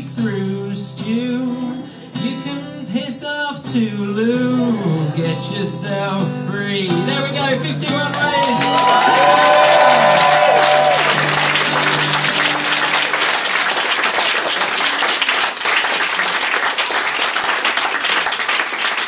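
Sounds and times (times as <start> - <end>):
audience clapping: 8.0 - 19.0
acoustic guitar chord ringing: 10.8 - 13.2.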